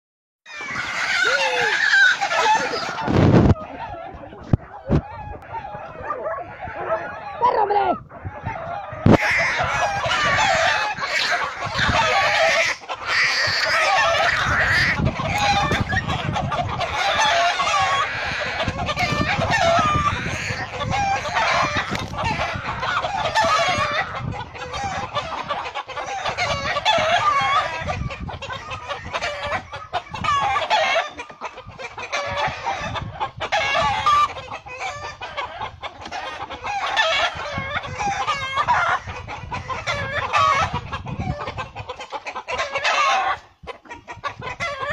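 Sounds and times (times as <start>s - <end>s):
chicken squawking and clucking: 0.5s - 44.9s.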